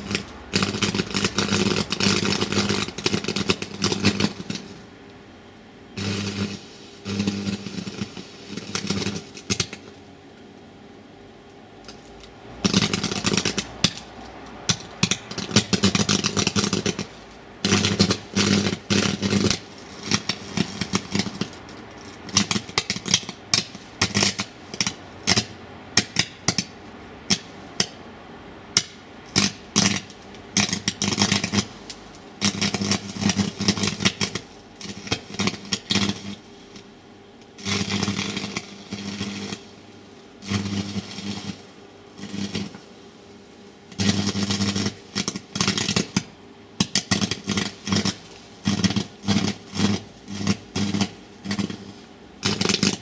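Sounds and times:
arc welder crackling and buzzing: 0.0 - 53.0.

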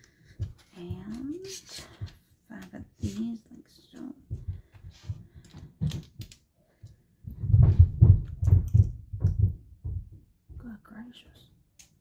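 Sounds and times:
plastic blocks clicking and rattling: 5.5 - 6.4
dull thumps: 7.3 - 10.7.

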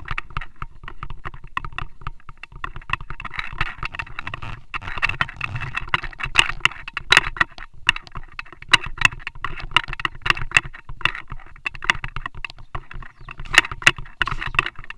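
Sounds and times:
fingers rubbing and tapping camera: 0.0 - 14.9.

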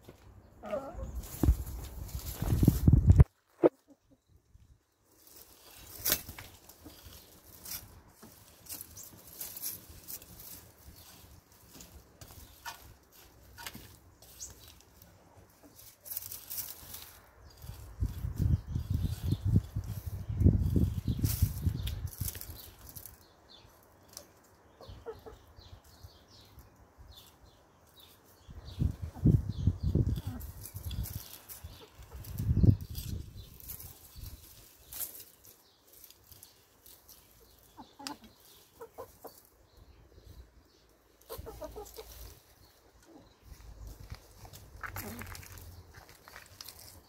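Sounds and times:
chickens scratching in soil: 0.0 - 4.1, 4.8 - 47.0
hens clucking softly: 37.7 - 39.5, 41.2 - 43.6.

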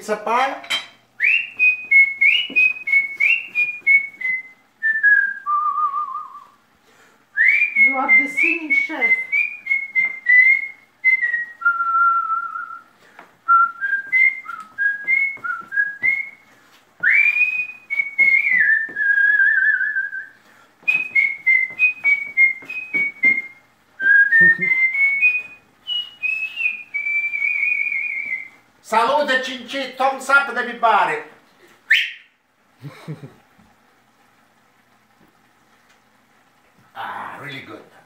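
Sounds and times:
man whistling a tune: 1.2 - 6.6, 7.4 - 12.9, 13.5 - 28.6, 31.9 - 32.3.

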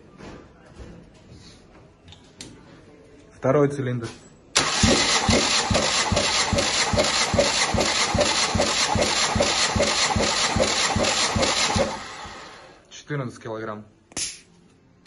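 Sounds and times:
starter motor cranking engine: 4.6 - 12.8.

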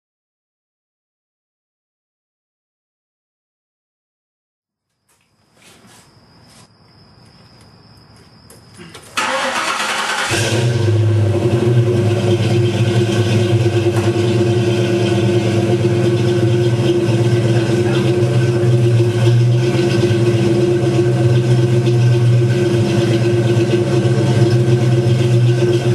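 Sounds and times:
starter motor cranking: 9.2 - 10.9
v eight engine idling loudly: 9.2 - 25.9.

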